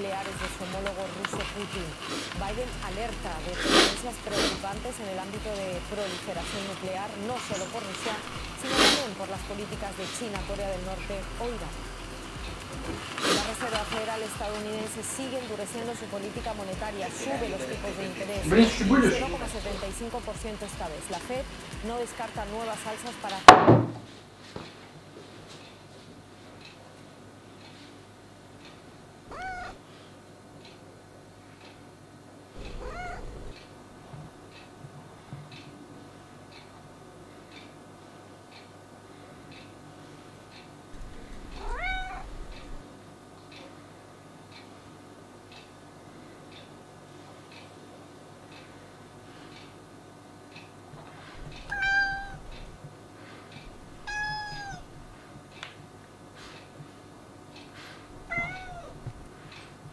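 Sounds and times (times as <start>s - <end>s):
cat meowing: 29.3s - 29.8s, 32.6s - 33.6s, 41.0s - 42.8s, 51.4s - 52.8s, 53.7s - 55.2s, 58.2s - 59.2s.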